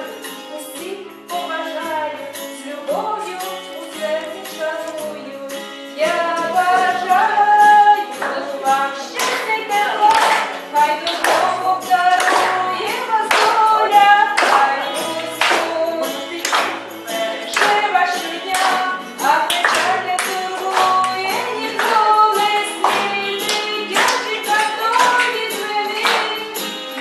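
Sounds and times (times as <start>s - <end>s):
song with sung melody: 0.0s - 27.0s
people clapping along: 6.0s - 27.0s.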